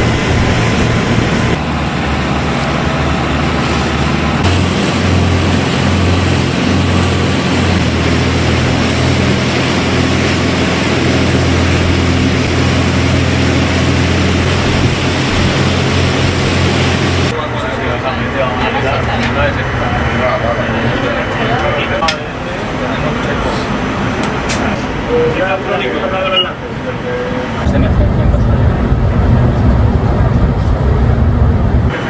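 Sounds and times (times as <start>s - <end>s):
wind on microphone: 0.0s - 2.3s, 2.9s - 17.3s, 27.6s - 32.0s
motorboat engine humming: 0.0s - 32.0s
water rushing: 0.0s - 32.0s.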